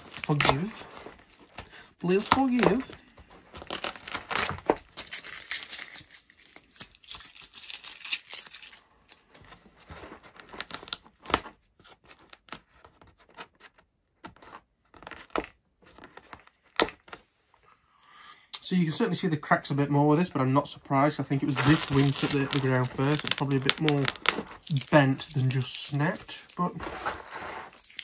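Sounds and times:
adhesive tape peeling off foam: 3.5s - 8.7s, 21.4s - 26.7s.

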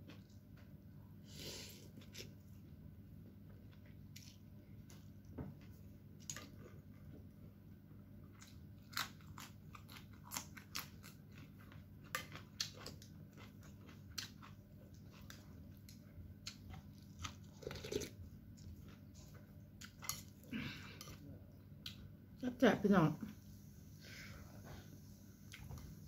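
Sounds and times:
person chewing: 1.3s - 2.5s, 8.3s - 22.0s.

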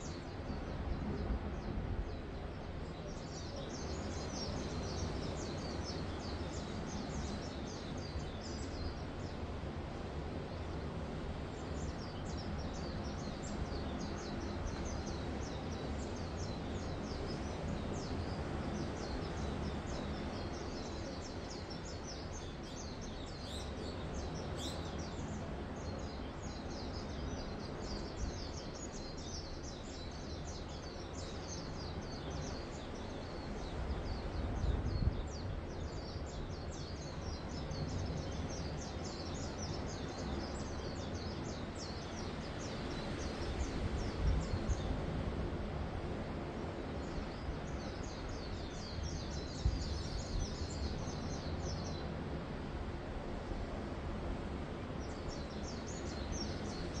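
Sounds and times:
gentle surf: 0.0s - 57.0s
small birds chirping: 47.0s - 52.1s.

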